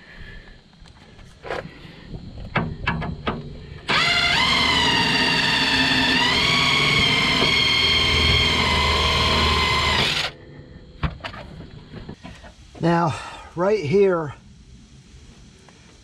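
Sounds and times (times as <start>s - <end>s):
motor whining: 3.8s - 10.4s.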